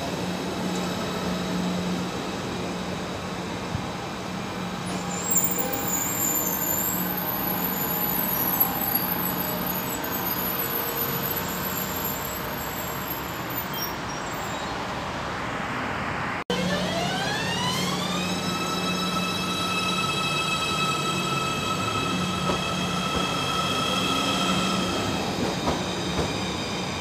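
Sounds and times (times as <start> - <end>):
train rumble and hum: 17.1 - 27.0.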